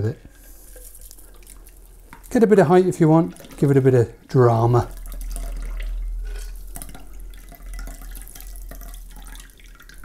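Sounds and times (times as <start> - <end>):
liquid splashing into glass: 4.9 - 10.0.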